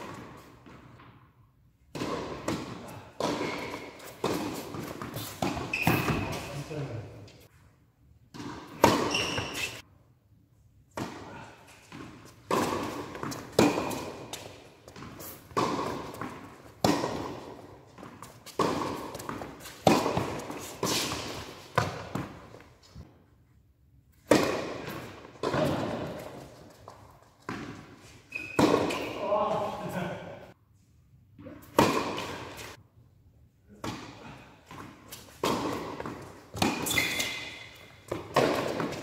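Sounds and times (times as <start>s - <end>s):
racket hitting tennis ball: 0.0s - 1.2s, 1.9s - 6.9s, 8.3s - 9.8s, 10.9s - 23.1s, 24.1s - 29.8s, 31.4s - 32.8s, 33.7s - 39.0s
ball bouncing on hard court: 1.9s - 6.8s, 8.3s - 9.7s, 10.9s - 23.1s, 24.2s - 29.6s, 31.7s - 32.7s, 33.8s - 39.0s.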